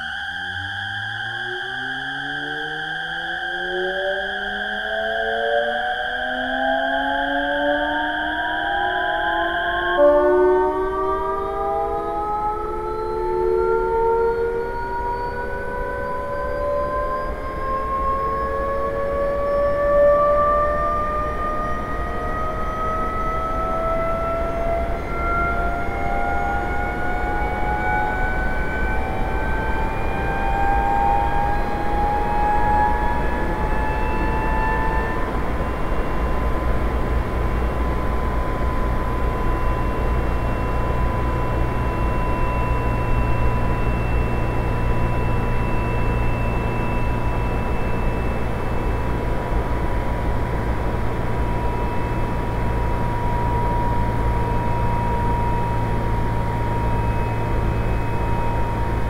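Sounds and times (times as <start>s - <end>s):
train gear whine: 0.0s - 59.0s
train inverter and motor whine: 0.0s - 59.0s.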